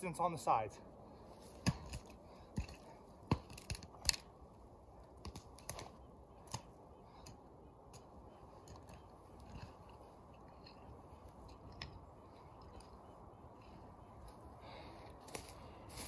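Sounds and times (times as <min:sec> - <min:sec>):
digging tool chopping into dirt: 0:01.5 - 0:04.3.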